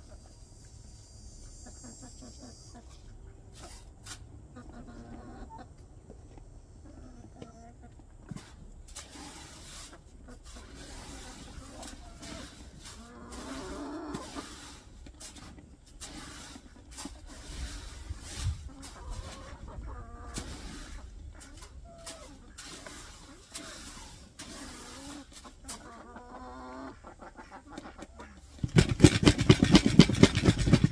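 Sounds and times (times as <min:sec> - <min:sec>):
chickens clucking: 0:00.0 - 0:30.9
dry feed scooped from metal can: 0:08.4 - 0:19.6, 0:20.4 - 0:25.9.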